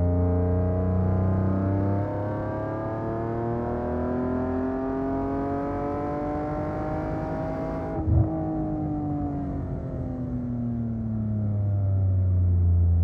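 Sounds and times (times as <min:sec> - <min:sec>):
car engine revving up: 0:00.1 - 0:08.3.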